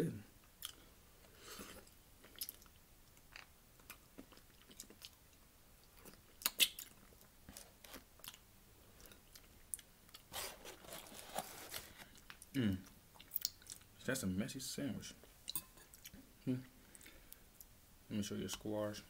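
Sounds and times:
close chewing and mouth smacks: 0:00.6 - 0:00.8, 0:01.6 - 0:08.4, 0:09.0 - 0:10.3, 0:12.1 - 0:14.0, 0:15.4 - 0:16.2.

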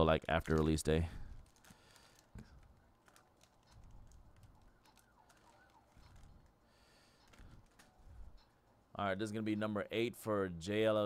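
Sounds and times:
foil wrapper crinkling: 0:00.2 - 0:08.3.

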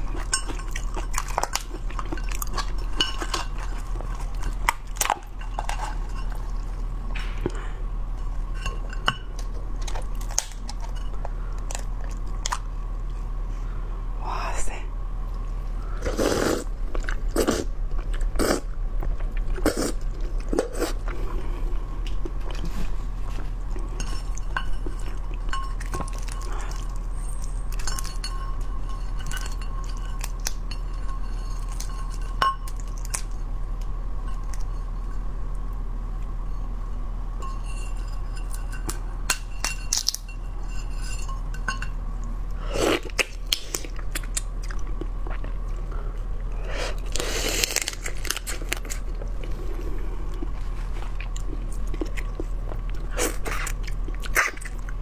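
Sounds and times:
chewing and biting: 0:42.9 - 0:55.0.

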